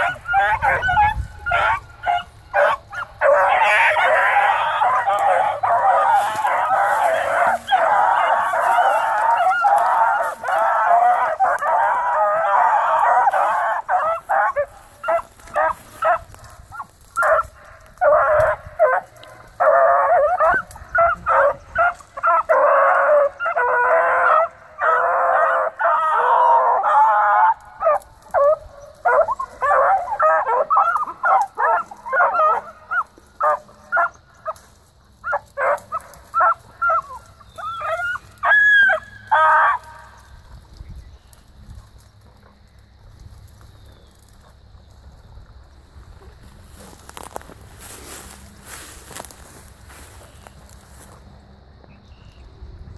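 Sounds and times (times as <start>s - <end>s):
yelping barks: 0.0s - 34.6s, 35.2s - 40.2s
hounds baying: 0.0s - 40.7s, 41.3s - 51.2s.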